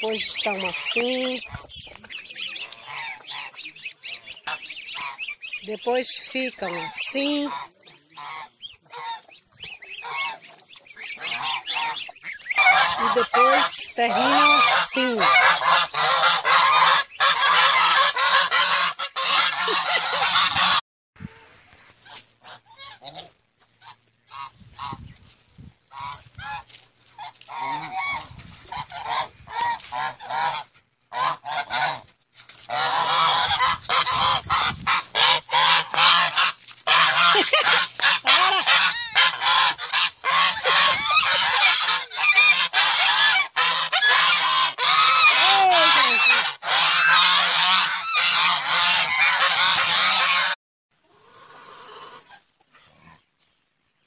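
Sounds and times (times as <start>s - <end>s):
geese honking: 0.0s - 20.8s, 22.0s - 25.0s, 25.9s - 50.6s.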